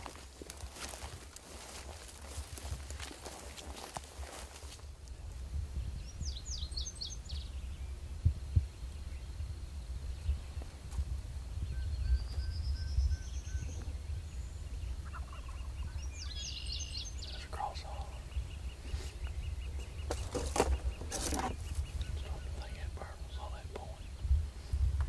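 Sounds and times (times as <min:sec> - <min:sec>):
songbirds: 0:00.0 - 0:25.0
wind on microphone: 0:04.7 - 0:25.0
turkey gobbling: 0:15.0 - 0:15.8.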